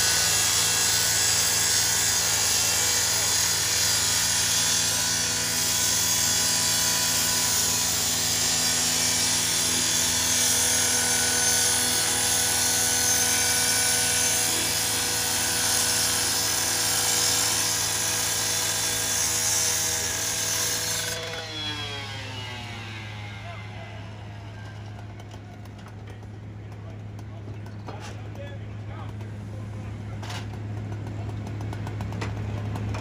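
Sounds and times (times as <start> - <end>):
blade grinding metal: 0.0 - 24.2
rotary saw engine: 0.0 - 33.0.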